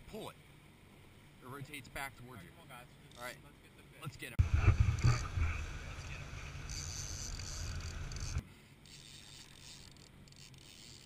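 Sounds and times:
wind buffeting microphone: 4.4s - 8.4s.

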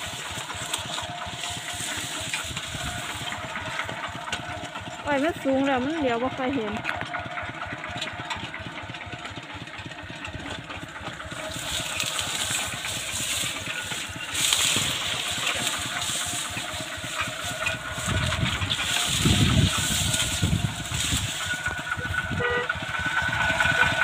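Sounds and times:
farm machine engine running: 0.0s - 24.0s
rhythmic hiss: 11.4s - 24.0s.

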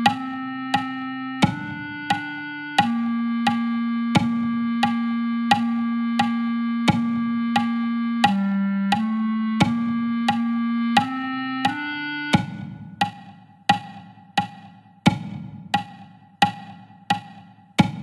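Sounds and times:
clarinet notes: 0.0s - 12.9s
metronome clicking: 0.0s - 14.6s.

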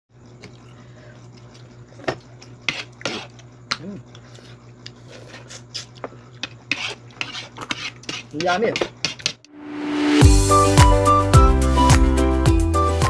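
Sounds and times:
knife scraping oyster shells: 2.4s - 3.5s, 4.1s - 9.4s.

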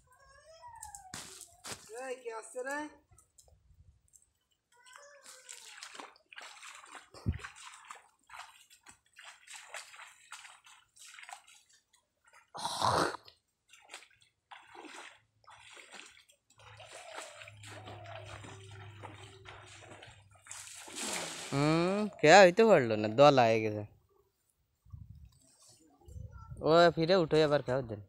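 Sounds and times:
pond water splashing: 0.8s - 2.8s, 4.8s - 22.9s.

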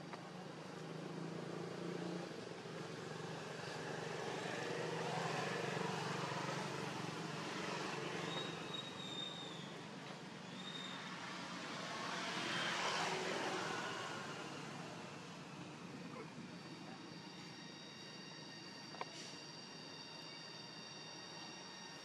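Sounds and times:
faint high whistle: 8.1s - 11.3s, 16.2s - 22.0s.

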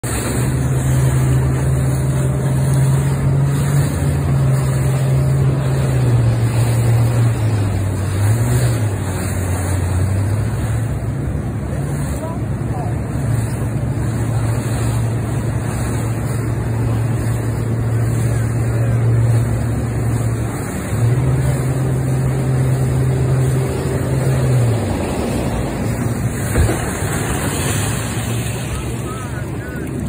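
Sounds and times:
boat engine drone: 0.0s - 30.0s
rushing water: 0.0s - 30.0s
wind: 0.0s - 30.0s
bow slamming into wake: 25.9s - 29.3s.

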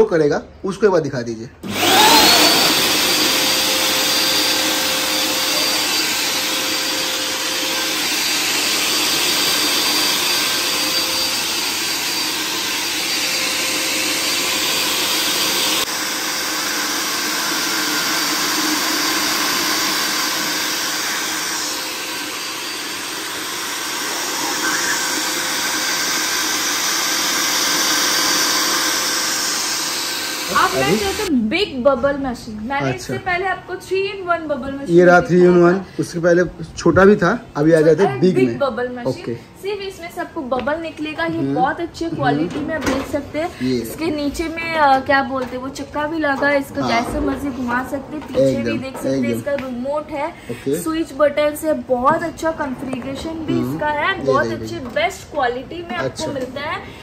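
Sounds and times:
blower fan rushing air: 1.6s - 31.3s
thin high motor whine: 20.3s - 31.3s.

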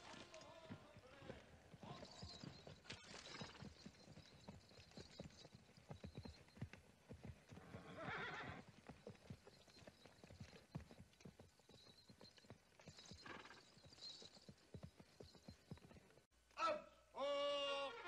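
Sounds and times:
horse hooves walking: 0.0s - 16.3s
horse call: 7.6s - 8.7s, 13.0s - 13.8s, 16.6s - 18.0s.

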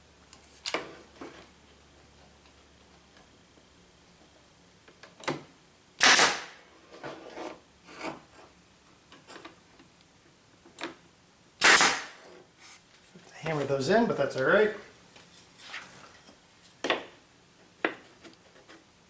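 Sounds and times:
loud short bursts: 6.0s - 6.6s, 11.6s - 12.2s
knocks and scrapes on wood: 6.9s - 8.5s.

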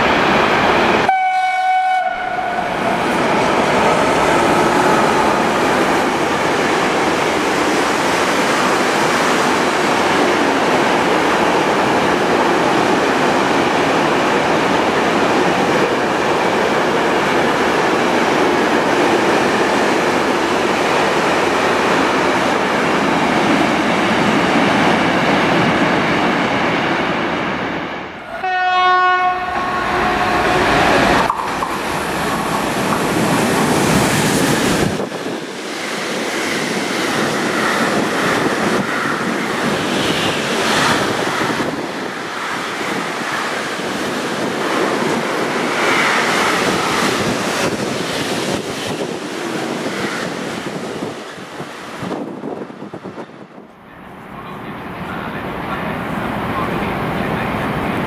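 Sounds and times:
freight train passing: 0.0s - 58.0s
locomotive horn: 1.1s - 3.0s, 28.2s - 30.9s.

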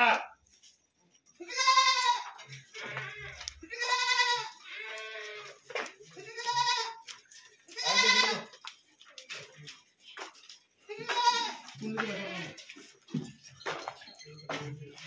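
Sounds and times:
goats bleating: 0.0s - 0.4s, 1.4s - 8.6s, 10.8s - 12.8s.

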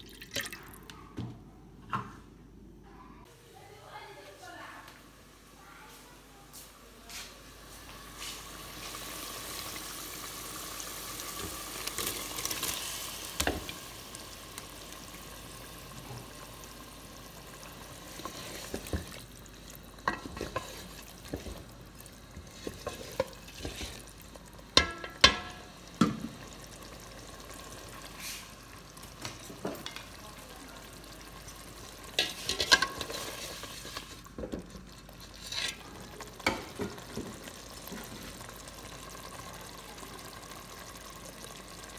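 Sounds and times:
fish sizzling in oil: 7.5s - 41.9s
spatula knocking against pan: 24.8s - 26.2s.

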